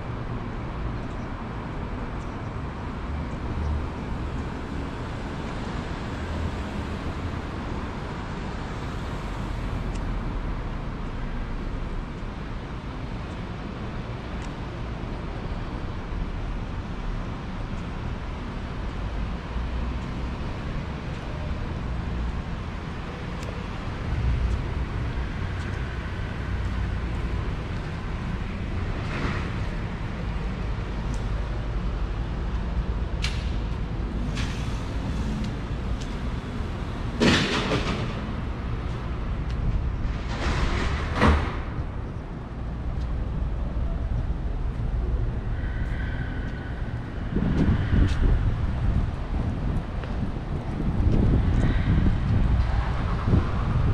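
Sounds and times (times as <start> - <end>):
low street rumble and hiss: 0.0 - 53.9
faint ticks: 25.6 - 25.9.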